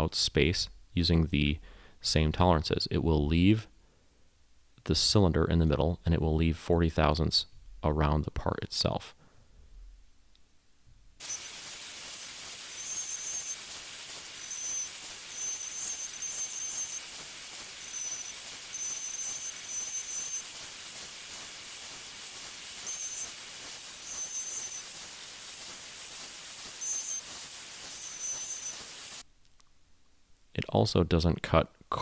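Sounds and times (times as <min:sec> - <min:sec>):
router spindle cutting wood: 0:11.2 - 0:25.0
high whine of cutting bit: 0:11.2 - 0:29.2.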